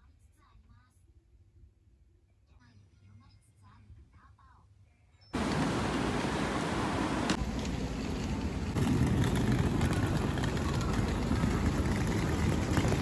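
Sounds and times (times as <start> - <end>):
road traffic passing: 5.4 - 13.0.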